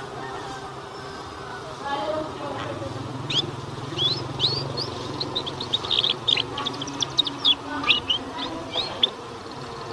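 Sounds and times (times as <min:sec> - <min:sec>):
canary twittering: 0:03.0 - 0:09.2.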